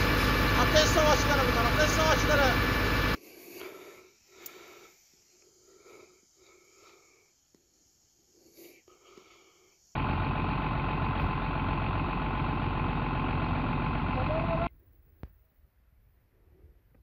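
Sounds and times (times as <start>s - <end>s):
diesel fire truck idling: 0.0s - 3.2s, 10.0s - 14.7s.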